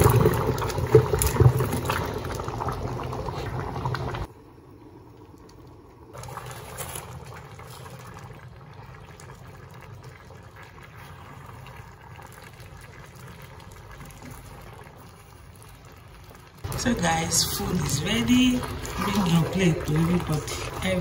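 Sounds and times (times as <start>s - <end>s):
stew bubbling: 0.0s - 21.0s
wooden spoon stirring thick stew: 16.6s - 21.0s.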